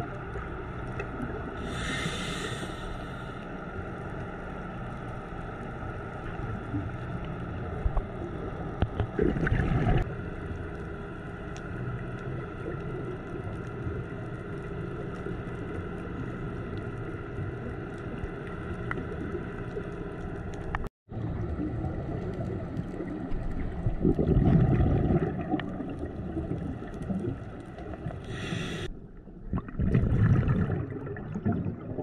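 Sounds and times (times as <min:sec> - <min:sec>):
low underwater rumble: 0:00.0 - 0:32.0
diver exhaling bubbles: 0:09.0 - 0:10.1, 0:21.4 - 0:32.0.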